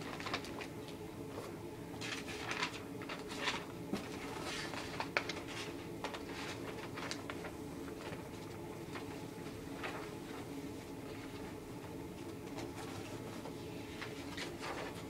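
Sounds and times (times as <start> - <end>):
plastic bags crinkling: 0.0 - 0.7
faint steady hum: 0.0 - 15.0.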